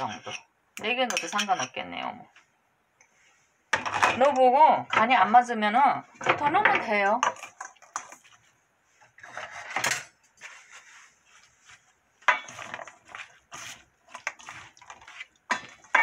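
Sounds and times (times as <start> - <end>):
wooden spatula scraping metal bowl: 0.0 - 1.9, 6.2 - 16.0.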